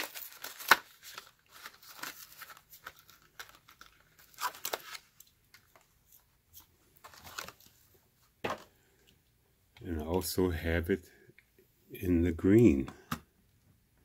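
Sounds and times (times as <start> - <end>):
packaging crinkling and rustling: 0.0 - 7.9.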